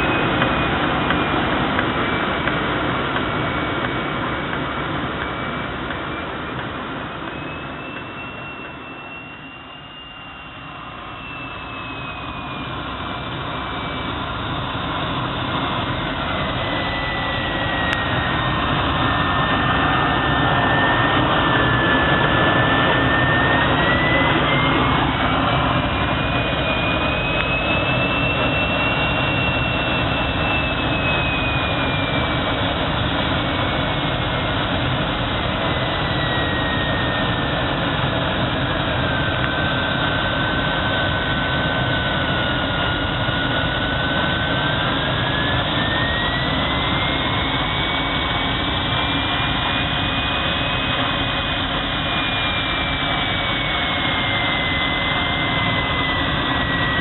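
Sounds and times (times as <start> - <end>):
high whistle: 0.0 - 2.5, 5.1 - 57.0.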